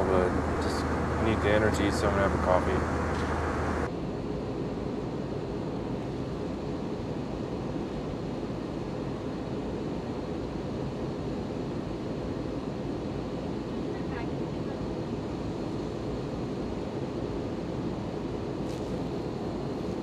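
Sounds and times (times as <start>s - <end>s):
airliner cabin noise: 0.0s - 3.9s, 11.1s - 20.0s
low hum: 0.0s - 3.9s.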